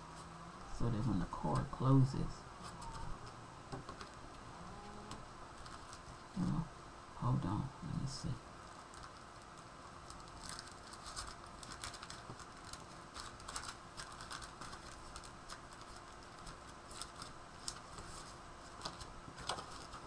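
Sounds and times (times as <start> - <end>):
paper rustling and clicking: 8.7 - 20.0.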